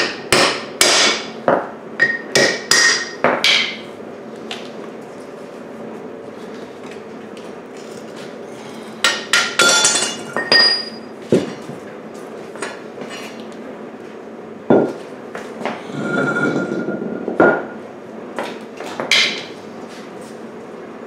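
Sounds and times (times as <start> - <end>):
metal ring clanking on concrete: 15.9 - 17.6.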